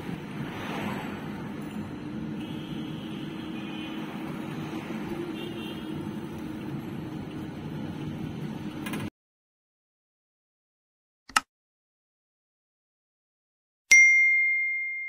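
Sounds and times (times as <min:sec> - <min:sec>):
road and tyre noise: 0:00.0 - 0:09.1.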